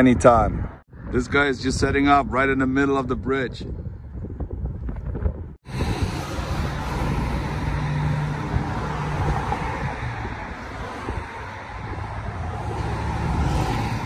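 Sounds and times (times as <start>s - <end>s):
wind buffeting microphone: 0.0s - 14.0s
road traffic noise: 5.6s - 14.0s
vehicle engine hum: 5.7s - 14.0s.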